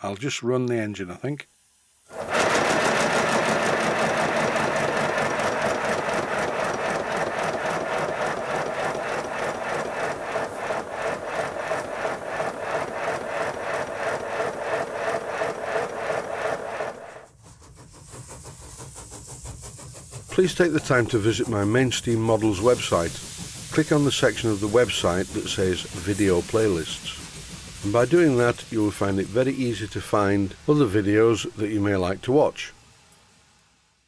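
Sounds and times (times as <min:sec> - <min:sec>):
model steam locomotive chuffing: 0:01.9 - 0:34.0
mechanical rattle: 0:02.1 - 0:17.2.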